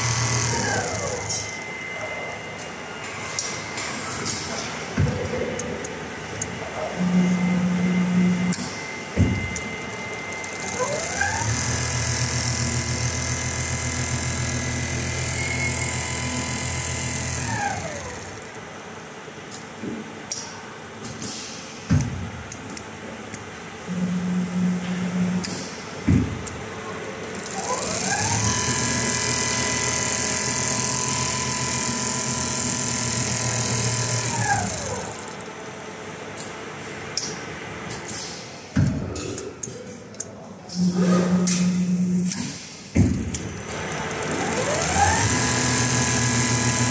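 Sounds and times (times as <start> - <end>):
sewing machine stitching: 0.0 - 1.4, 10.5 - 18.5, 27.3 - 35.4, 44.0 - 46.9.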